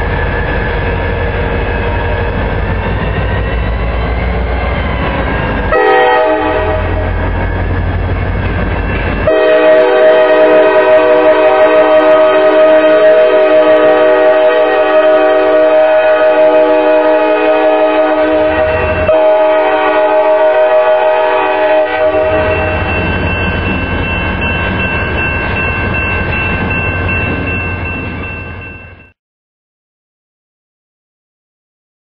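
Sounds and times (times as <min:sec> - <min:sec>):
train rumbling past: 0:00.0 - 0:29.1
locomotive air horn blast: 0:05.7 - 0:07.1, 0:09.3 - 0:22.8
steady high ringing: 0:22.2 - 0:29.1.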